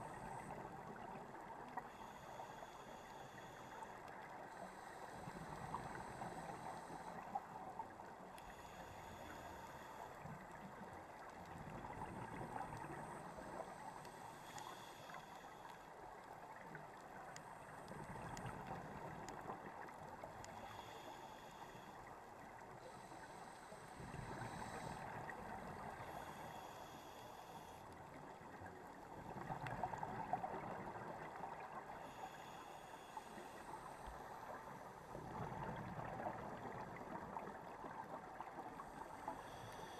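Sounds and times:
regulator inhale hiss: 0:01.8 - 0:10.8, 0:12.0 - 0:15.9, 0:20.4 - 0:22.2, 0:22.8 - 0:28.0, 0:31.8 - 0:35.3, 0:38.8 - 0:39.9.

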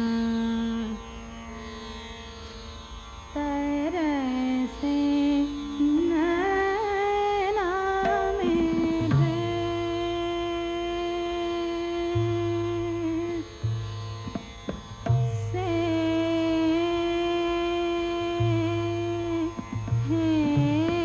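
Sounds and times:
low steady drone: 0:07.9 - 0:11.0
melody with sliding ornaments: 0:08.0 - 0:10.0.

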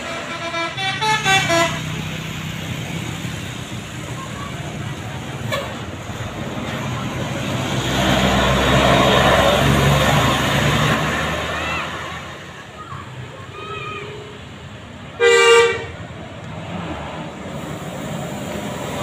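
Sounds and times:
multi-tone bus horn: 0:00.0 - 0:02.2, 0:05.4 - 0:05.9, 0:15.2 - 0:16.0
bus engine running: 0:00.0 - 0:19.0.

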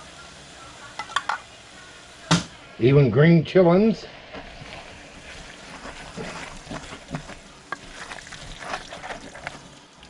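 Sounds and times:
faint sizzle: 0:00.0 - 0:10.0
wooden spoon scraping a pot: 0:04.3 - 0:09.7.

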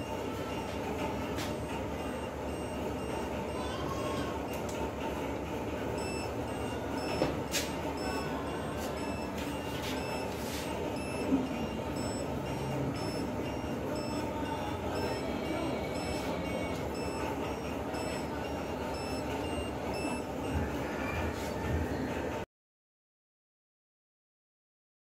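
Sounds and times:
short high beeps: 0:06.0 - 0:20.3.

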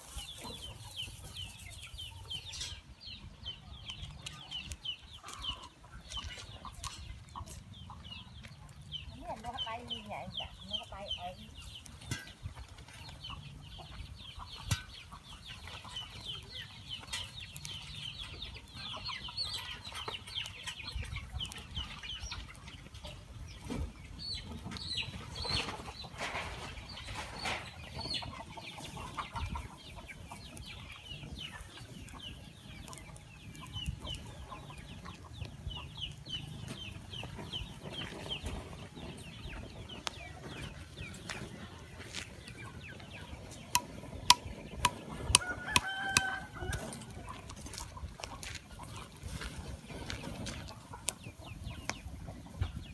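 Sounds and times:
chickens peeping and clucking: 0:00.0 - 0:52.9
fire crackling: 0:06.5 - 0:18.8, 0:30.4 - 0:40.2, 0:42.3 - 0:48.4.

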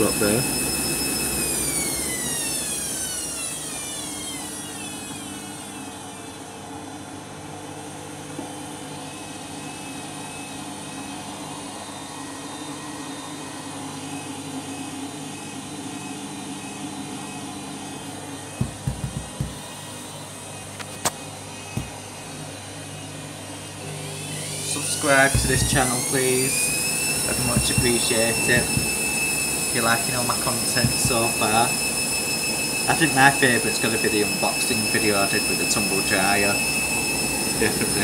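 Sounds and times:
washing machine motor whine: 0:00.0 - 0:38.0
drum turning in water hum: 0:18.5 - 0:20.0, 0:21.7 - 0:22.3, 0:24.5 - 0:32.6
knocks: 0:18.6 - 0:19.6.

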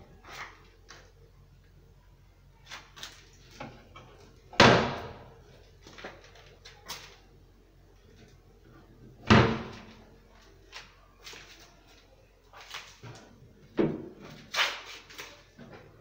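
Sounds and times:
cabinet doors banging shut: 0:04.6 - 0:05.2, 0:09.2 - 0:09.9.

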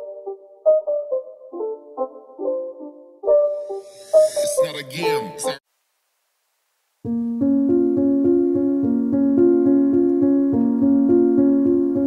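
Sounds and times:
gentle keyboard music: 0:00.0 - 0:05.6, 0:07.0 - 0:12.0.

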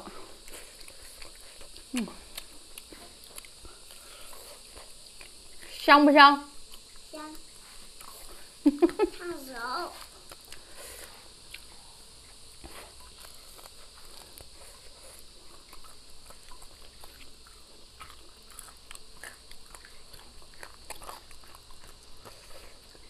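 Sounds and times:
crunching fried chicken: 0:13.1 - 0:23.0.

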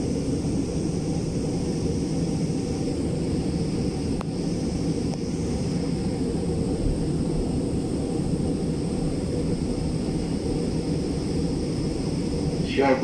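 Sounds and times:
high whine: 0:00.0 - 0:13.0
train rumble: 0:00.0 - 0:13.0.

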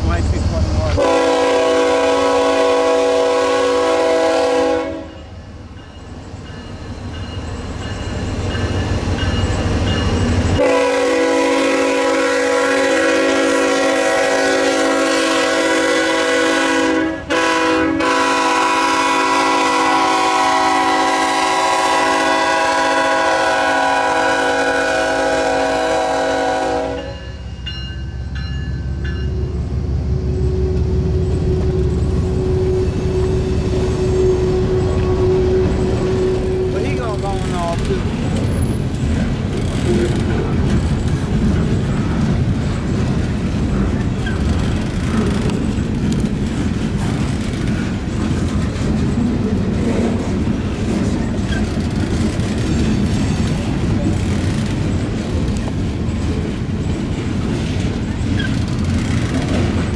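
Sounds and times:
passing train rumble: 0:00.0 - 0:59.9
locomotive air horn blasts: 0:01.0 - 0:05.2, 0:10.6 - 0:27.3, 0:32.3 - 0:37.1.

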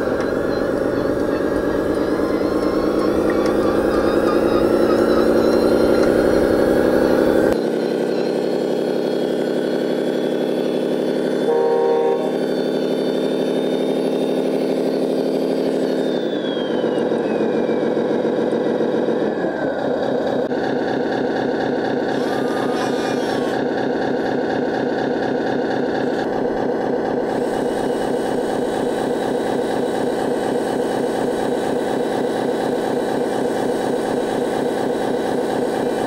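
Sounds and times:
falling whine: 0:00.0 - 0:20.5
model truck diesel engine sound: 0:00.0 - 0:36.0
truck horn blast: 0:11.4 - 0:12.6.

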